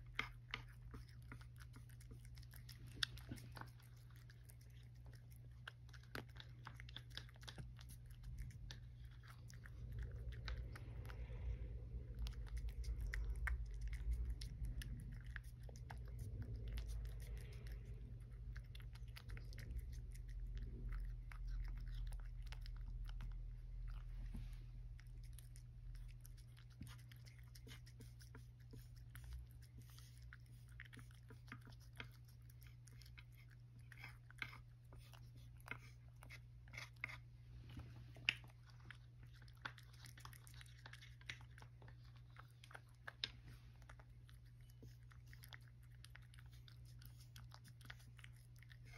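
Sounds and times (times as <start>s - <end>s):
cat chewing and crunching: 0.0s - 48.9s
low rumble: 8.0s - 26.7s.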